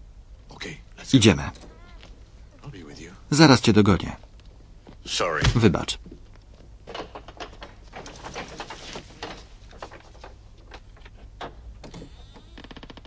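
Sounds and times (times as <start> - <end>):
faint low hum: 0.0 - 13.0.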